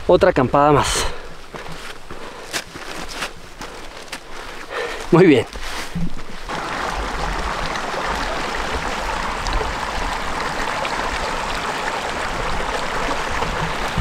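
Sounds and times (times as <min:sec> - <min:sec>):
stream flowing over stones: 0:03.4 - 0:14.0.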